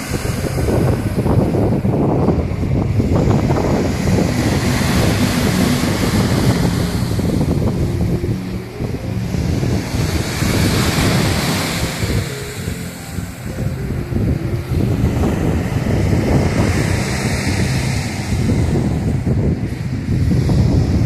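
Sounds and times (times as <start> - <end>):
surf breaking on sandy beach: 0.0 - 21.0
wind buffeting microphone: 0.0 - 21.0.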